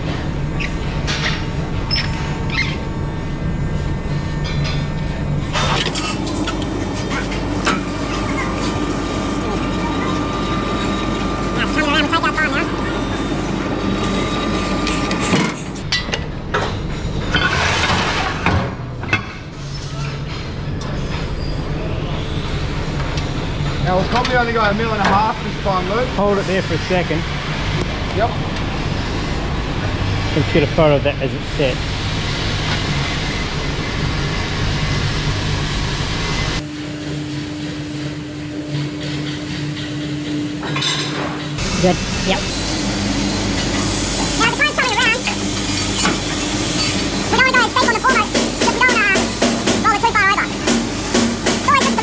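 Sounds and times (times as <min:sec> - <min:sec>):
machine low hum: 0:00.0 - 0:17.3
rolling machine rushing drone: 0:00.0 - 0:17.3, 0:21.8 - 0:52.0
steel plates clanking and scraping: 0:05.5 - 0:18.6.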